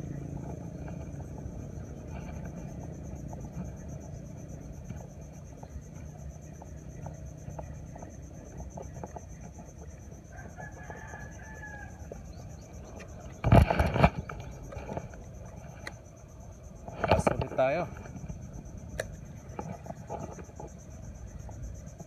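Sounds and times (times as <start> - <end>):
high insect buzz: 0.0 - 22.0
rooster crowing: 10.2 - 12.7.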